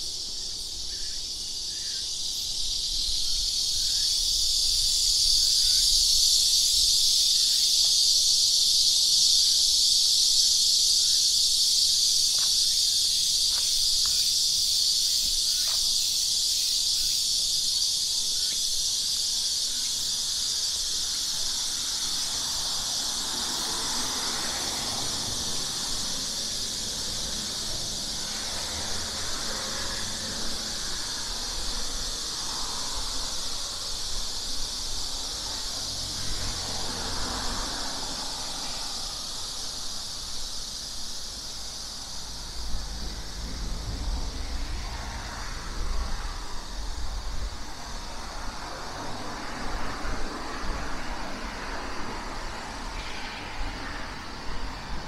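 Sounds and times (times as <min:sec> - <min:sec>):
cicadas buzzing: 0:00.0 - 0:55.0.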